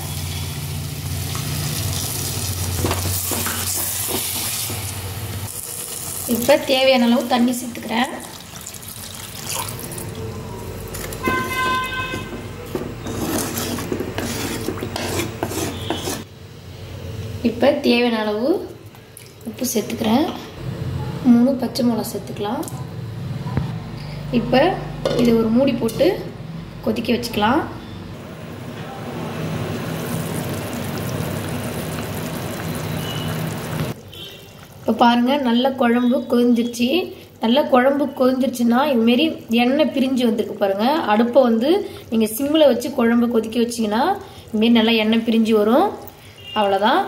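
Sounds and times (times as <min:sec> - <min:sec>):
short horn-like tone: 0:11.2 - 0:12.5
spatula scraping clay pot: 0:11.2 - 0:16.3.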